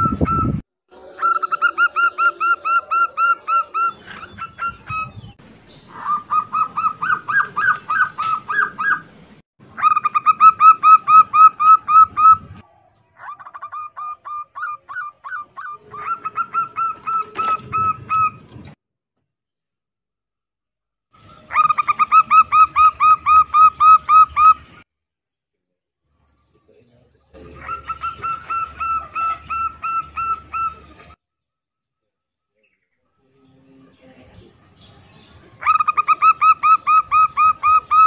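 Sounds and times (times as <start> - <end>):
dove calling in fast runs: 13.2 - 18.5.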